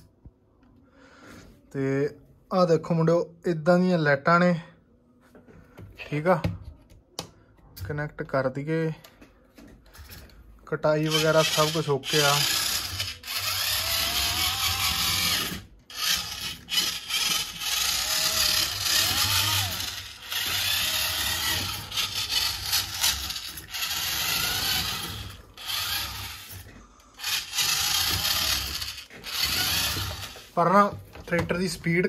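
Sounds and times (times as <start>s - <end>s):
small electric motor whining: 11.0s - 30.6s.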